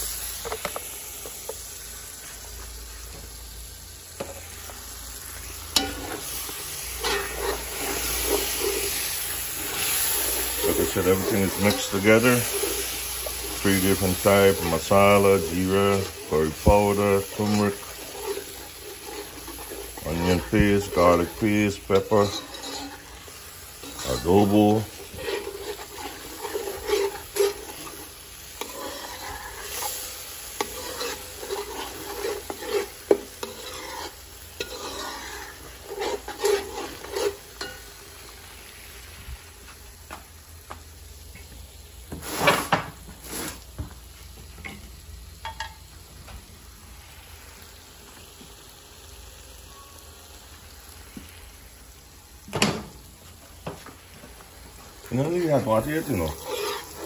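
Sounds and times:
paste sizzling in metal pot: 0:00.0 - 0:57.0
stirring and scraping in pot: 0:04.2 - 0:38.4, 0:54.6 - 0:57.0.

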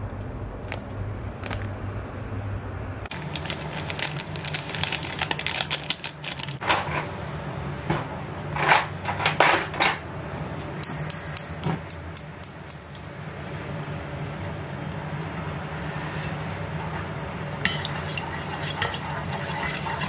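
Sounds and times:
plastic sachet crinkling: 0:03.1 - 0:06.6
low steady hum: 0:07.2 - 0:20.0.

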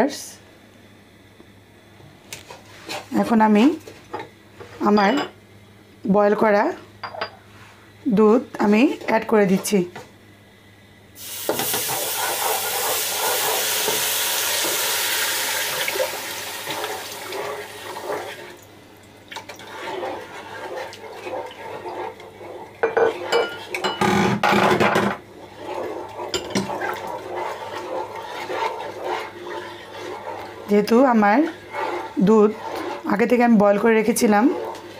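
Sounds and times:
wooden spoon scraping a pan: 0:02.4 - 0:05.0, 0:08.5 - 0:10.0, 0:11.5 - 0:15.1, 0:16.1 - 0:18.5, 0:19.4 - 0:34.9
milk hissing and sizzling in pan: 0:11.2 - 0:18.7, 0:19.4 - 0:23.8, 0:25.3 - 0:34.9.

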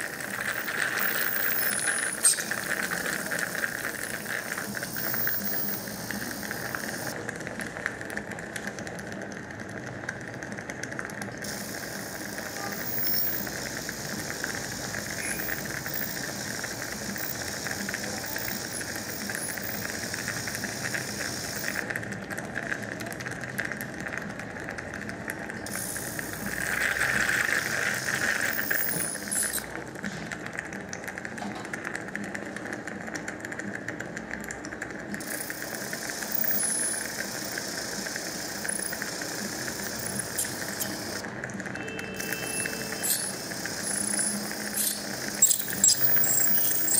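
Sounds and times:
hiss: 0:00.0 - 0:07.2, 0:11.4 - 0:21.9, 0:25.6 - 0:29.7, 0:35.2 - 0:41.2, 0:42.2 - 0:46.9
surgical handpiece high whine: 0:00.0 - 0:07.2, 0:11.5 - 0:21.8, 0:42.0 - 0:46.9.

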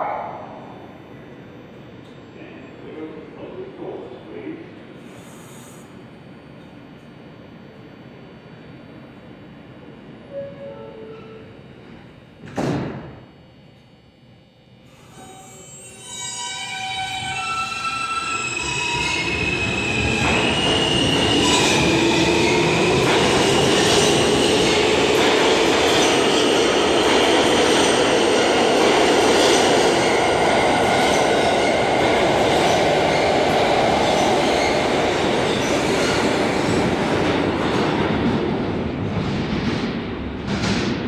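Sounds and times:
rumble of wheels on rail: 0:15.0 - 0:41.0.

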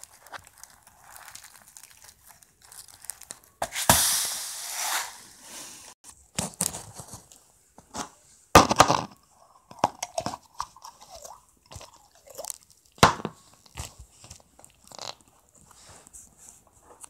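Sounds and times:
slime squishing with wet crackles: 0:00.0 - 0:03.6, 0:10.4 - 0:15.8.

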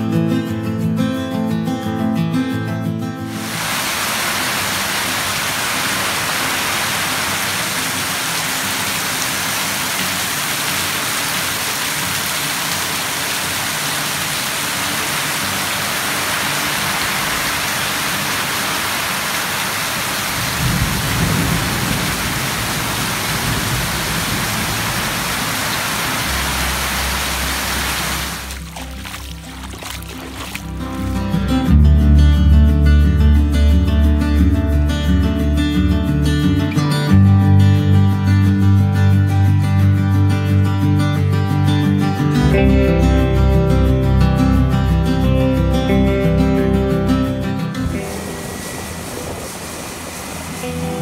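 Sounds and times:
heavy rain splashing into puddles: 0:03.3 - 0:31.3, 0:47.8 - 0:51.0
low rumble of thunder: 0:20.4 - 0:25.0.

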